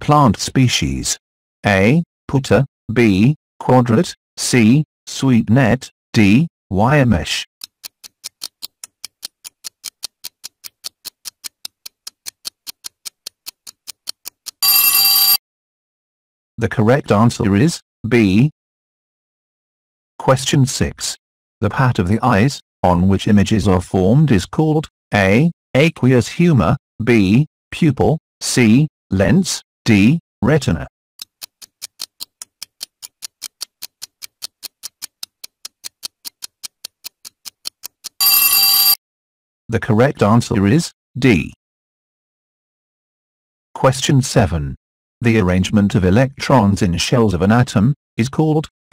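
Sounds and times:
timer ticking: 0:07.6 - 0:15.4, 0:31.2 - 0:39.0
electronic bell ringing: 0:14.6 - 0:15.4, 0:38.2 - 0:39.0.

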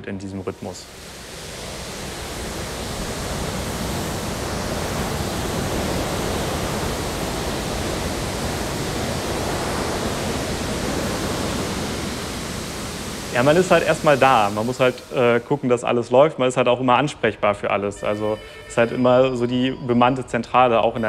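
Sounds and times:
rough sea rushing: 0:00.5 - 0:15.8.

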